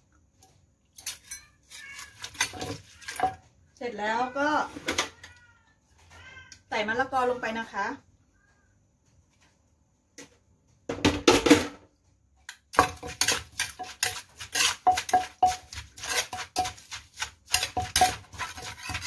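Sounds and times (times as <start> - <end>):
metal spoon clinking on mortar: 0.9 - 3.4, 12.7 - 19.0
wooden pestle pounding in mortar: 12.7 - 19.0.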